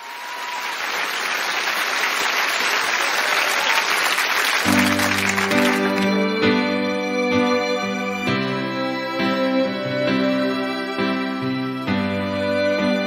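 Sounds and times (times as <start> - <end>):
audience applauding: 0.0 - 6.7
held keyboard chord: 4.7 - 13.0.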